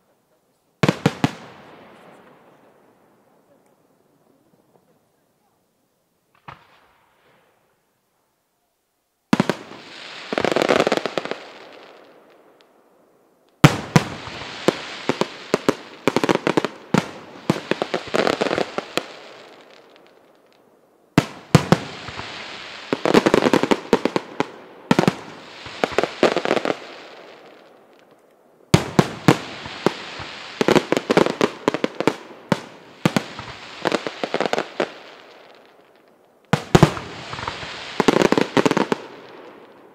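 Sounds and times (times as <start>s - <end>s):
small firework pop: 6.3s - 7.4s
firework shells bursting: 32.6s - 39.9s.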